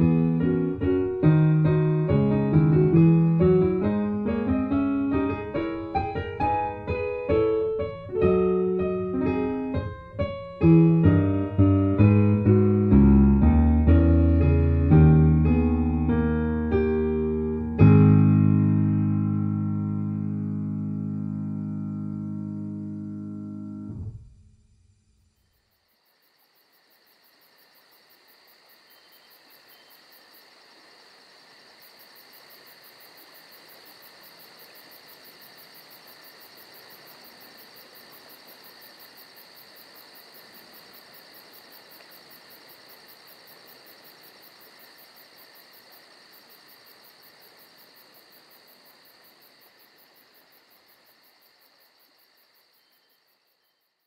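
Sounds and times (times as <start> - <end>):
crickets chirring: 24.4 - 54.0.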